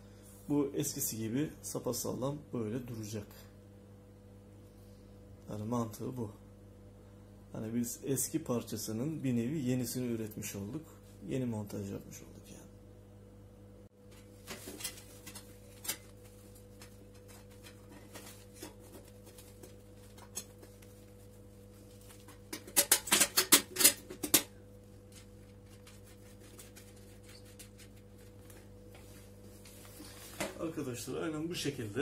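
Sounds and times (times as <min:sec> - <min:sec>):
faint steady hum: 0:00.0 - 0:32.0
metal parts clicking and knocking: 0:22.5 - 0:24.5.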